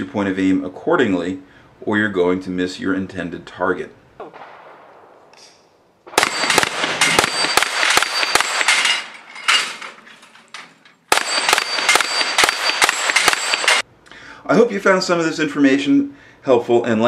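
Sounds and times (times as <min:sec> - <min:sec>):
rifle gunshots: 0:04.3 - 0:05.4, 0:06.0 - 0:09.1, 0:11.1 - 0:13.8
steel plates ringing: 0:06.2 - 0:13.8.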